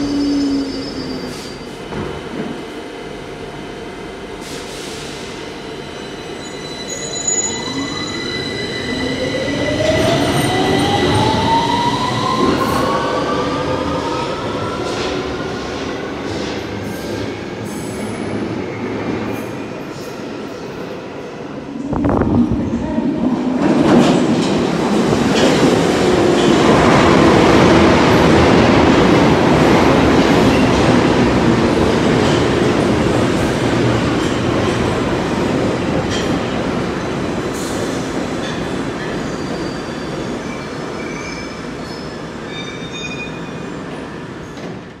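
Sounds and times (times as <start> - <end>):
train brakes squealing: 0.0 - 1.8, 4.4 - 9.5, 39.0 - 43.8
underground train pulling in: 0.0 - 45.0.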